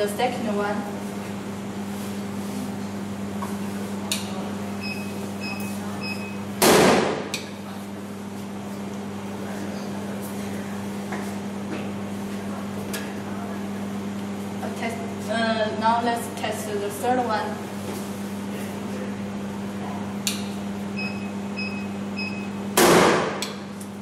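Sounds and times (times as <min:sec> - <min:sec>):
steady low hum: 0:00.0 - 0:24.0
short electronic beeps: 0:04.8 - 0:06.4, 0:21.0 - 0:22.5.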